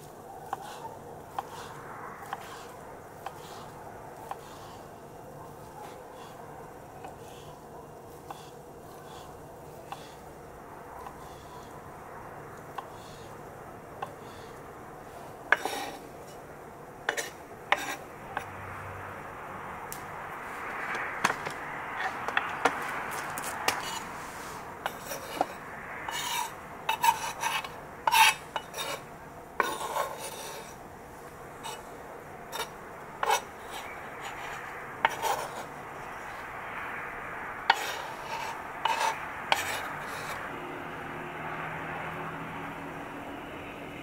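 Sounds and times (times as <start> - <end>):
knife chopping on wooden board: 0.5 - 3.7, 8.3 - 10.2
meat scraped into bowl: 15.6 - 16.4, 23.5 - 30.8.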